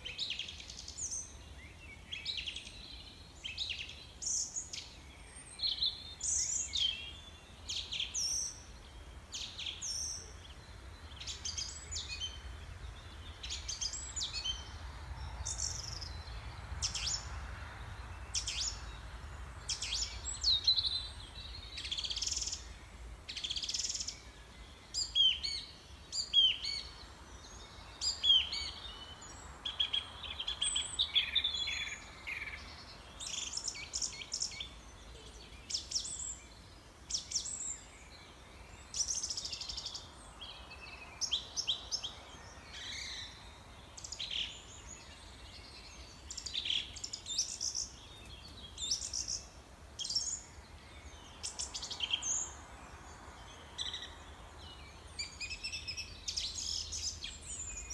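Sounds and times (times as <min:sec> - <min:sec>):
birds chirping: 0:00.0 - 0:57.9
faint background hiss: 0:00.0 - 0:57.9.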